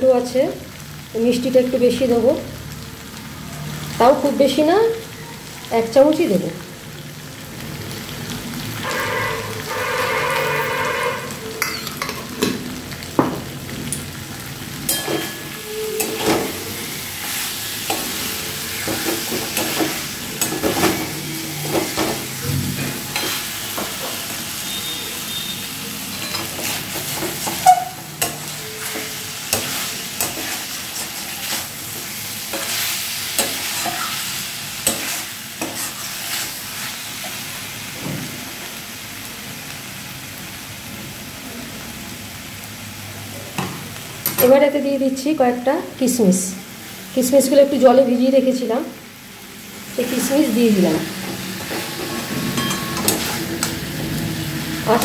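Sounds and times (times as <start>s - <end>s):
potatoes sizzling in oil: 0.0s - 55.0s
metal spatula scraping pan: 8.8s - 12.3s, 14.9s - 25.5s, 26.1s - 36.9s, 51.0s - 55.0s.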